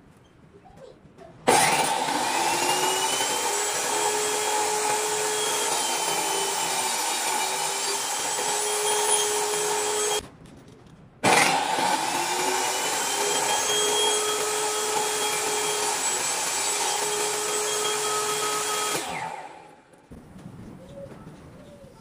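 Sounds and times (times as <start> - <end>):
table saw whining: 1.5 - 10.2, 11.2 - 19.8.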